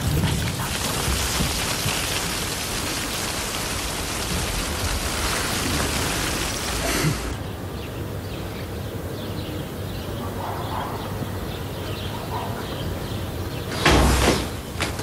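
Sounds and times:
steady rushing hiss: 0.0s - 8.2s.

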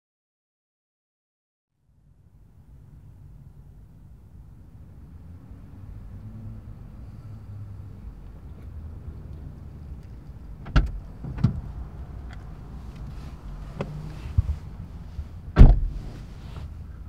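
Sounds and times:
car door shutting with thump: 10.6s - 11.6s, 15.5s - 16.2s
car door clicking open: 10.6s - 11.7s, 15.6s - 16.0s.

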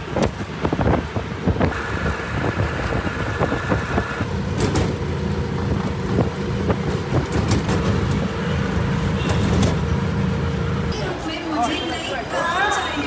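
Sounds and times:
road noise: 0.0s - 13.0s
body rattling: 5.6s - 8.3s.

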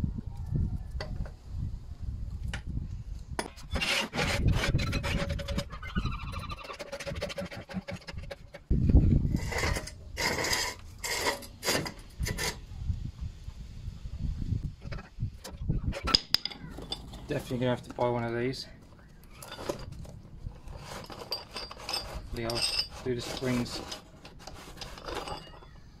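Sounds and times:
metal scraping on concrete: 3.4s - 12.7s, 14.8s - 26.0s
squeak: 3.7s - 7.4s, 19.2s - 19.9s.

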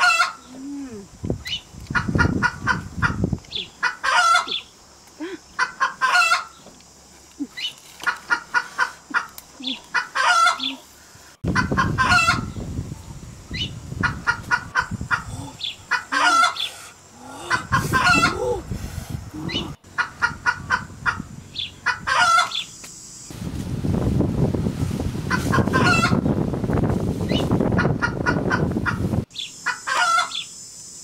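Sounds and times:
chickens clucking: 0.0s - 0.6s, 1.5s - 6.7s, 7.4s - 12.6s, 13.6s - 18.7s, 19.4s - 22.7s, 25.3s - 26.2s, 27.7s - 29.1s, 29.7s - 30.4s.

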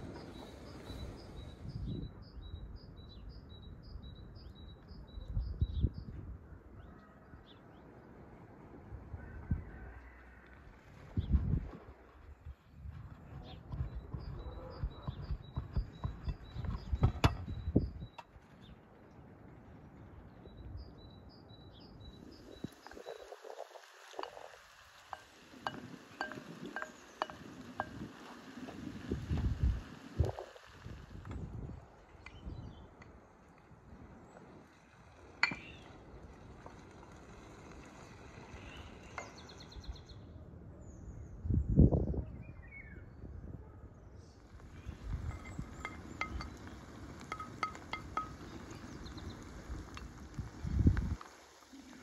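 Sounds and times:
outdoor background noise: 0.0s - 52.0s
small bird chirping: 13.4s - 18.8s
wooden spoon knocking frying pan: 25.1s - 28.1s.

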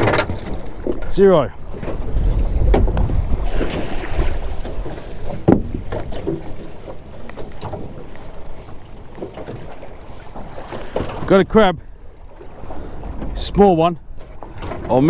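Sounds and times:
wind buffeting microphone: 0.0s - 15.0s
knocks against boat hull: 5.4s - 6.5s.

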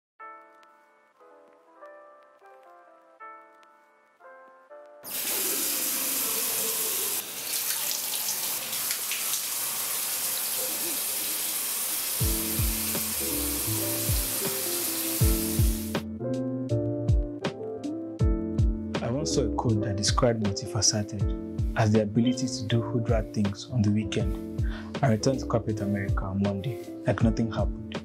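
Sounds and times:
soft melodic music: 0.2s - 7.2s, 12.2s - 28.0s
rush of running water: 5.1s - 15.9s
beat-driven music with bass thumps: 12.2s - 14.3s, 15.2s - 17.6s, 18.2s - 19.0s.

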